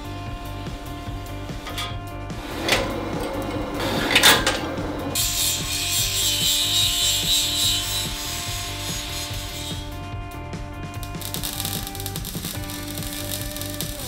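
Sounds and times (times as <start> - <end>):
background music: 0.0 - 14.0
band saw cutting steel: 0.5 - 10.1
angle grinder grinding steel: 0.6 - 10.1.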